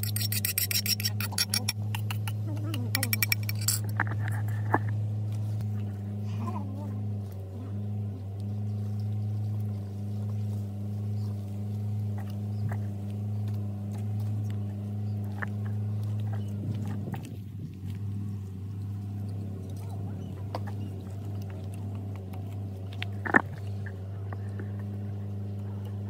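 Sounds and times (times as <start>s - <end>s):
person eating: 0.0s - 4.0s
steady low hum: 0.0s - 26.0s.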